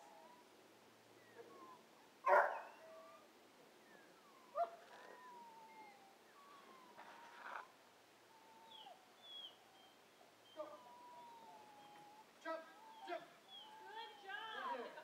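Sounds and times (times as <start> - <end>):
faint chirps and whistles: 1.2 - 7.7, 8.3 - 14.7
dog barking: 2.2 - 2.7.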